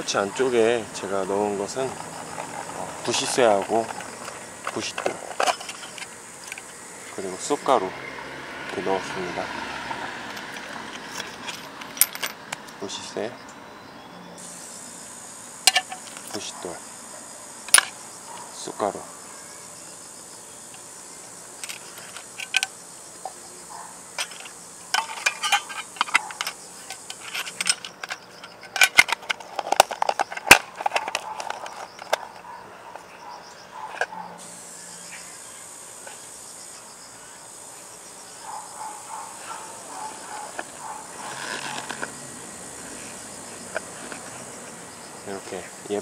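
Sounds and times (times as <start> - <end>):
high insect buzz: 0.0 - 46.0
metal tin clicks and knocks: 24.2 - 32.2
leather pouch rustling: 39.1 - 42.1.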